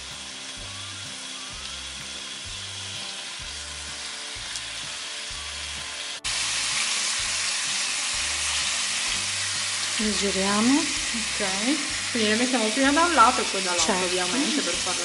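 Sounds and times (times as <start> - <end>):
food sizzling in oil: 0.0 - 15.0.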